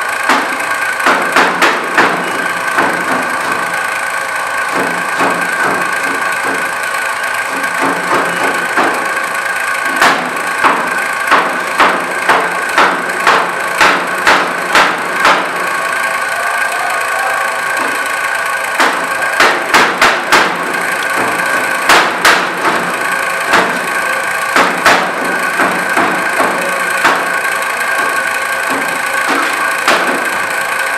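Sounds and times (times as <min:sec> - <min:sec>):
steady background hum: 0:00.0 - 0:30.9
cleaver chopping on plastic board: 0:18.8 - 0:22.9, 0:23.5 - 0:23.8, 0:24.6 - 0:27.3.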